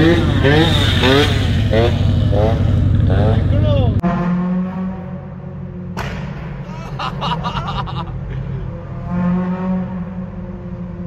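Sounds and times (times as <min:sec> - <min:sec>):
car engine running: 0:00.0 - 0:04.0.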